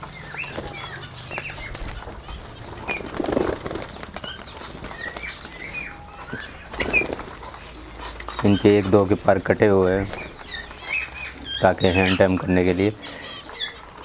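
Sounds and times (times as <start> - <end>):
parakeet wings flapping: 0.0 - 8.4
parakeets chirping: 0.0 - 14.0.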